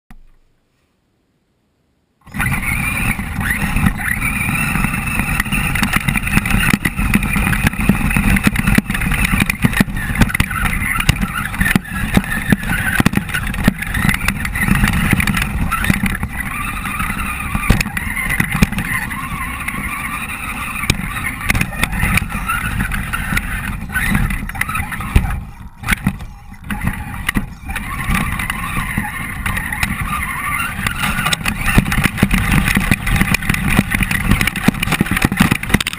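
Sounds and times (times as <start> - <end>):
electric motor whine: 2.2 - 35.9.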